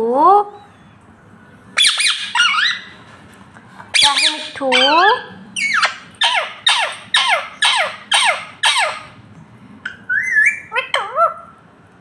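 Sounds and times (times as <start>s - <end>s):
parakeet squawking: 1.8s - 3.0s, 3.9s - 9.2s, 10.1s - 11.5s.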